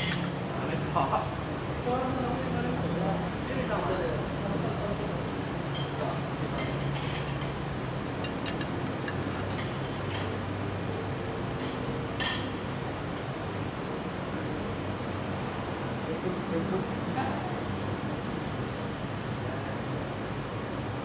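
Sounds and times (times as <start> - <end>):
cutlery clinking on pans: 0.0 - 0.3, 6.6 - 7.5, 8.2 - 10.4, 11.6 - 12.6.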